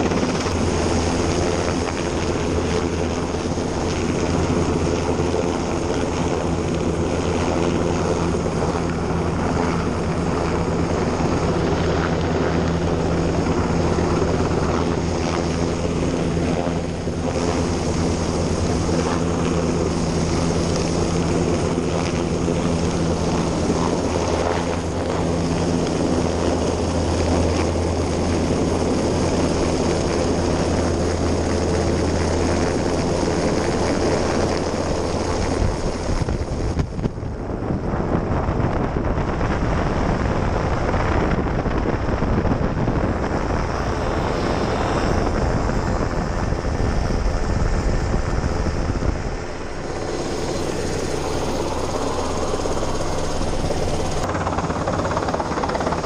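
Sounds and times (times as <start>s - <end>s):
helicopter rotor drone: 0.0s - 56.0s
wind and spray rushing: 0.0s - 56.0s.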